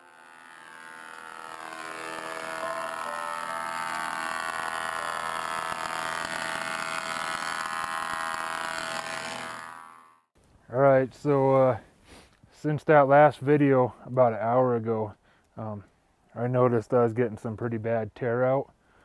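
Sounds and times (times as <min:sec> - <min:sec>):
planer cutting a board: 0:00.0 - 0:10.2.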